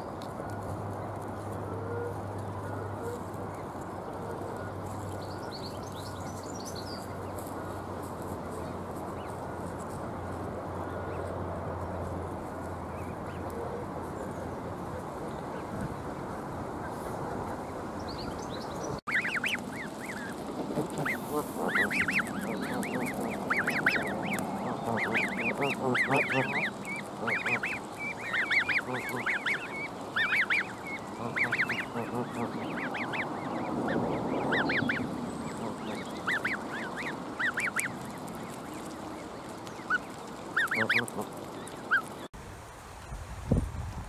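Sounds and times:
goslings peeping: 0:01.4 - 0:08.3, 0:16.8 - 0:42.3.

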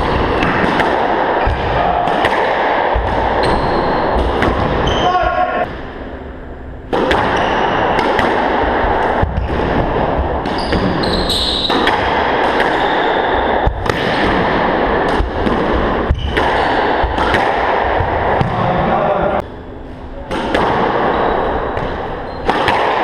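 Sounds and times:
squash ball cracking off walls: 0:00.0 - 0:04.9, 0:06.9 - 0:18.8, 0:20.3 - 0:23.0
steady noisy background: 0:00.0 - 0:23.0
sneaker squeak on wooden floor: 0:03.4 - 0:04.1, 0:10.5 - 0:11.8, 0:22.2 - 0:22.5.

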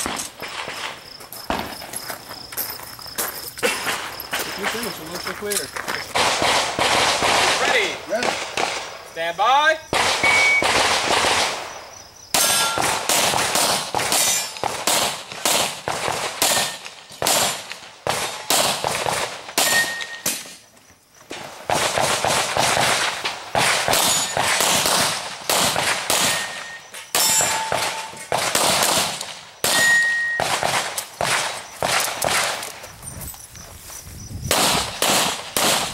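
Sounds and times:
rapid handgun shots: 0:06.1 - 0:09.0, 0:09.9 - 0:20.4, 0:21.6 - 0:32.7, 0:34.5 - 0:35.9
steel targets clanging: 0:12.4 - 0:12.9, 0:14.2 - 0:14.6, 0:26.2 - 0:28.4, 0:29.7 - 0:30.4.

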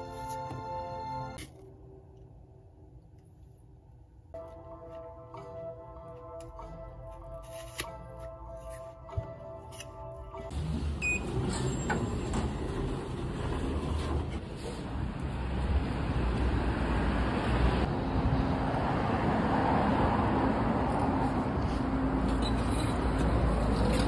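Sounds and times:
road traffic rumble: 0:10.5 - 0:24.0
card reader beep: 0:11.0 - 0:11.9.

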